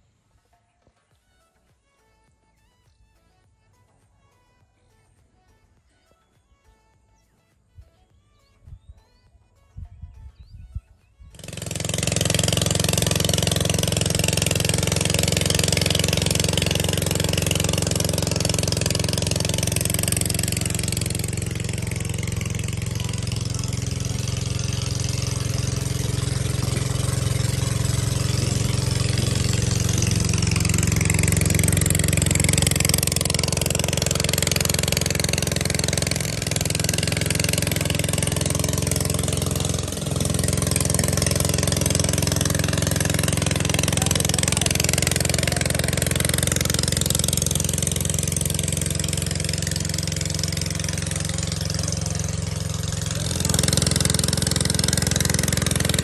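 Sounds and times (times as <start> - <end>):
engine running: 11.3 - 56.0.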